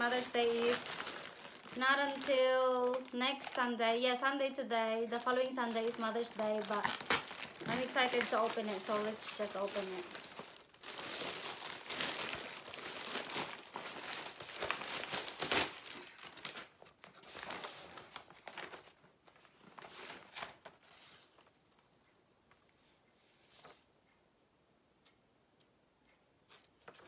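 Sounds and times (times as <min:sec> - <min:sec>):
plastic and paper packaging crinkling: 0:00.0 - 0:21.6
paper sheet being handled: 0:05.0 - 0:21.5.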